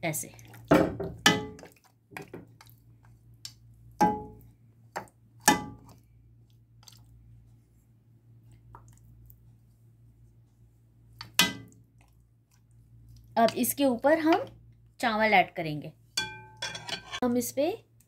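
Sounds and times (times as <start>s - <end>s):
spatula clanking against pot: 16.2s - 17.2s.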